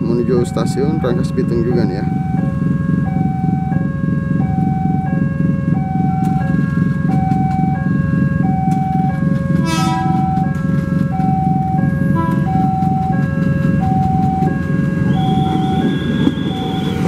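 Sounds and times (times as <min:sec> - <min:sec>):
level crossing alarm: 0:00.0 - 0:17.0
motorcycle engines idling: 0:00.0 - 0:17.0
buzzy horn beep: 0:09.6 - 0:10.4, 0:15.0 - 0:17.0.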